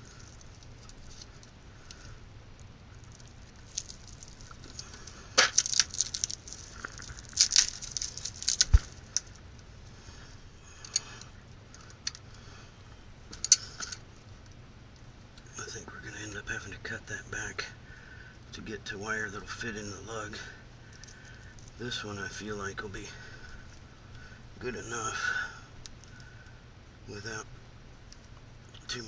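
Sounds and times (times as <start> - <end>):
cable sheathing tearing: 3.0 - 9.4.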